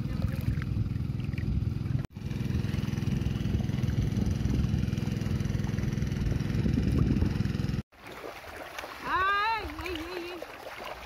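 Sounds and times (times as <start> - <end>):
motor engine running: 0.0 - 7.8.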